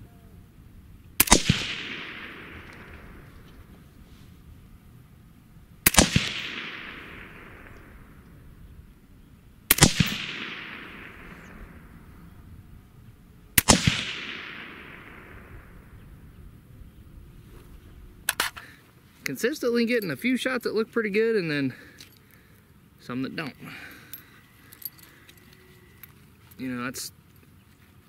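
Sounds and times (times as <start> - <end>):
gunshot echo: 1.2 - 3.8, 5.8 - 8.6, 9.7 - 12.3, 13.6 - 16.3
suppressed rifle shots: 1.2 - 4.0, 5.8 - 8.8, 9.7 - 12.3, 13.6 - 16.4.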